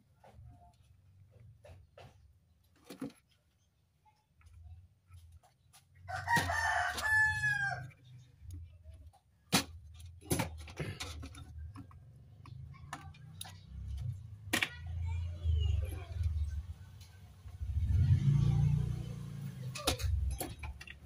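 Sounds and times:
rooster crowing: 6.1 - 7.8
hand tools clicking and tapping: 19.7 - 21.0.

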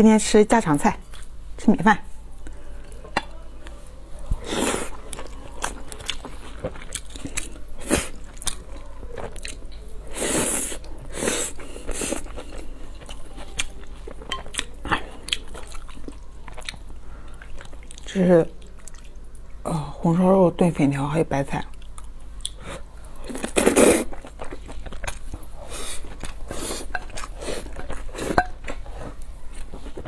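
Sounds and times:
person chewing: 2.4 - 19.4, 21.7 - 30.0
person slurping noodles: 23.5 - 24.1.

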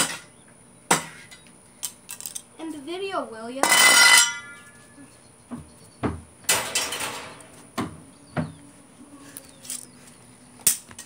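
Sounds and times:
dull thumps and knocks: 5.5 - 6.3, 7.7 - 8.6.

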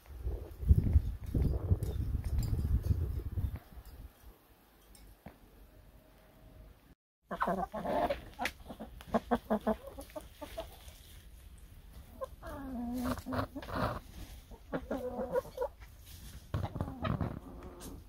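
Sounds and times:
hens clucking: 7.3 - 15.9, 16.5 - 18.0.

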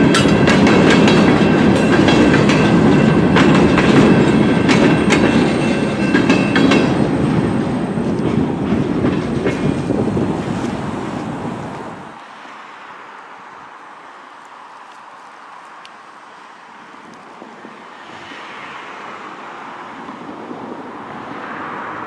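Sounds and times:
freight cars clacking over rails: 0.0 - 10.8
distant train: 0.0 - 22.0.

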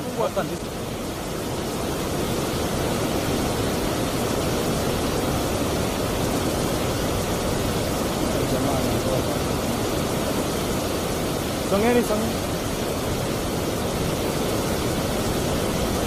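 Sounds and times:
river rushing over boulders: 0.0 - 16.0.

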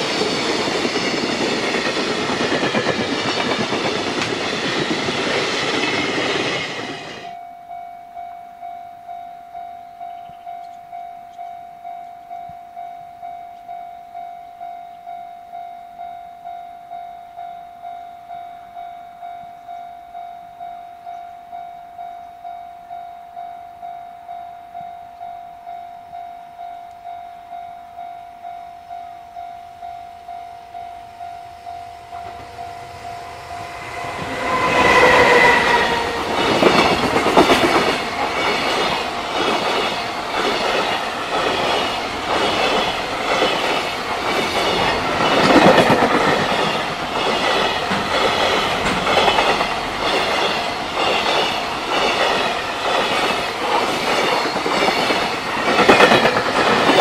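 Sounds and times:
level crossing warning bell: 7.3 - 55.0
freight wagons rolling on rails: 32.2 - 57.0.

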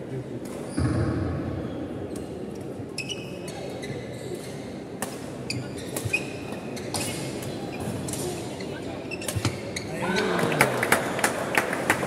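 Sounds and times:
murmur of spectators: 0.0 - 12.0
shoes squeaking on wooden court: 3.0 - 4.8, 5.4 - 10.3.

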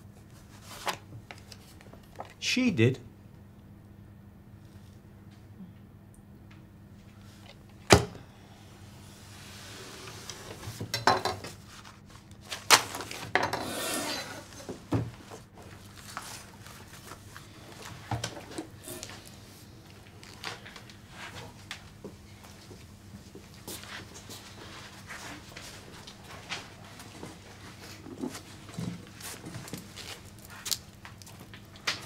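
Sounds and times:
papers and clothing rustling: 0.2 - 2.4, 11.5 - 13.3, 14.4 - 32.0
chair scraping: 13.0 - 15.4.

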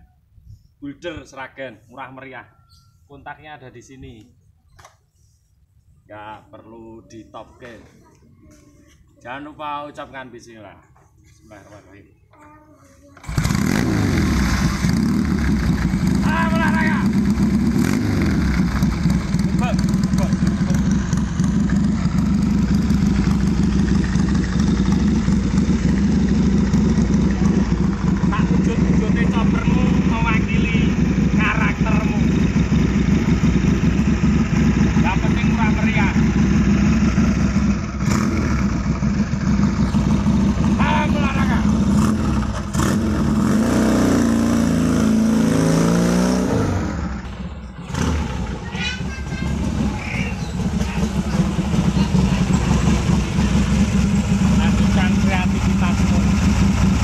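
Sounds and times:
motorcycle engine running: 13.2 - 57.0.

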